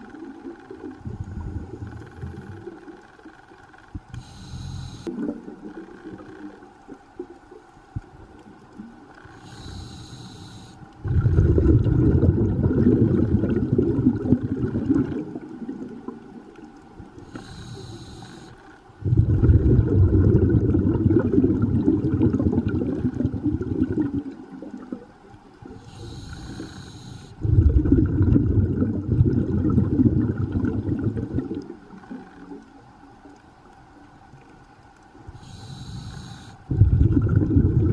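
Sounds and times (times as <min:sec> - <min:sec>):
diver inhaling through regulator: 0:04.1 - 0:05.3, 0:09.2 - 0:13.0, 0:17.2 - 0:21.3, 0:25.7 - 0:29.6, 0:35.3 - 0:37.9
bubbling exhaust: 0:11.0 - 0:16.2, 0:19.0 - 0:25.0, 0:25.9 - 0:31.8, 0:35.4 - 0:37.9.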